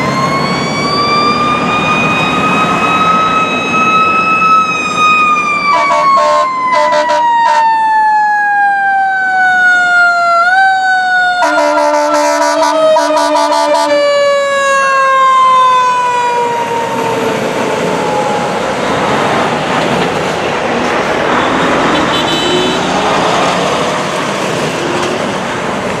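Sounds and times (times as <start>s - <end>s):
siren winding down: 0.0s - 19.0s
fire engine and road noise: 0.0s - 26.0s
fire engine air horn: 5.6s - 8.0s, 10.5s - 16.8s, 21.0s - 23.3s.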